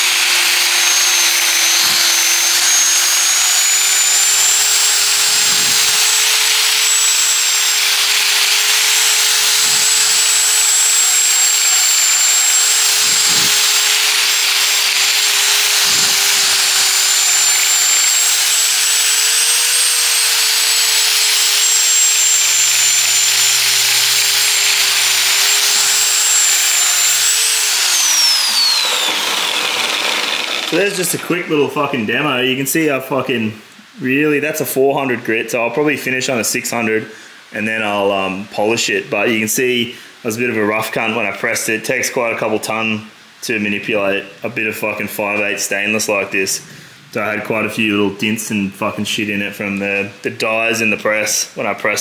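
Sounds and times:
angle grinder whining: 0.0s - 31.5s
grinder spinning down: 0.0s - 31.5s.

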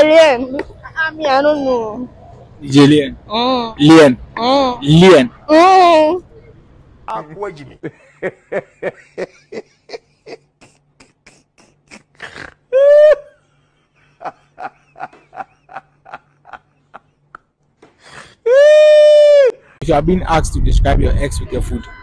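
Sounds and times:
man laughing hard: 7.8s - 17.3s.

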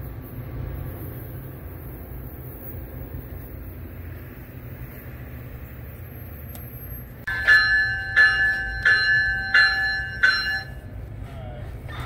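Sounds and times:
railroad bell ringing: 6.8s - 11.1s.

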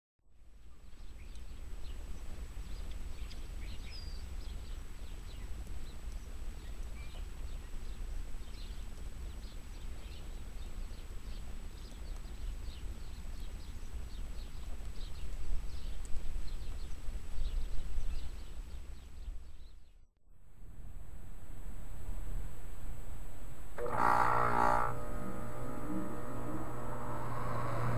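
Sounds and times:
faint high-pitched whine: 20.3s - 27.9s
steady low rumble: 20.3s - 27.9s.

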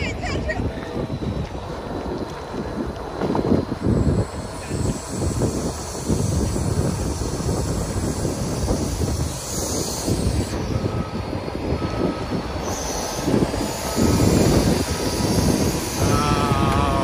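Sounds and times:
wheel loader engine rumble: 0.0s - 17.0s
wavering squeal: 3.7s - 17.0s.

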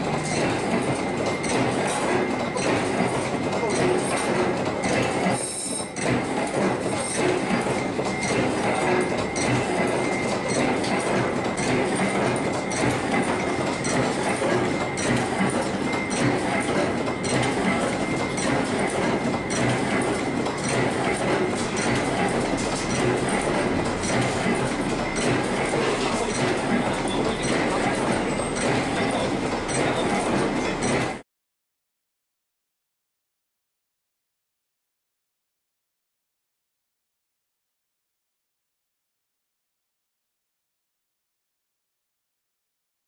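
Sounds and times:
factory machinery clattering: 0.0s - 31.2s.

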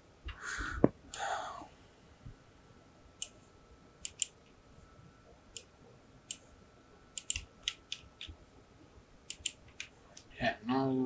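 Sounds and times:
computer mouse clicking: 4.0s - 4.6s, 7.1s - 8.4s, 9.3s - 10.3s.

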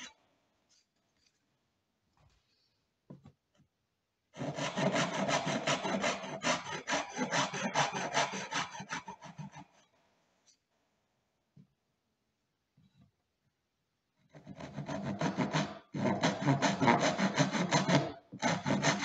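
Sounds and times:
hand saw cutting wood: 4.4s - 9.8s, 14.3s - 19.0s.

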